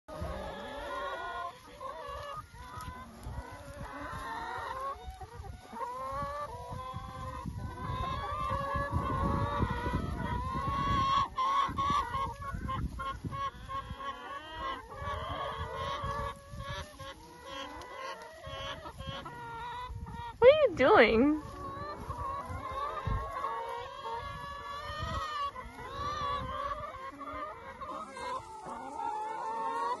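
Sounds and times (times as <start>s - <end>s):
hens clucking: 0.1s - 30.0s.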